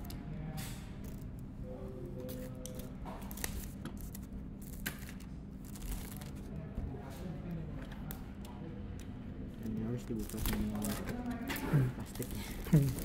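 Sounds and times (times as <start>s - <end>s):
plastic wrap crinkling: 10.0s - 13.0s.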